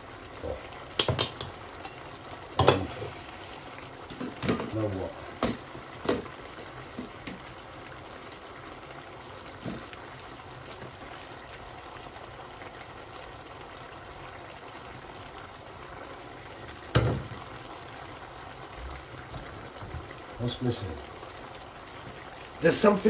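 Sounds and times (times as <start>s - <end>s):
chicken and onions sizzling: 0.0s - 23.0s
wooden spoon knocking pot: 1.0s - 2.0s.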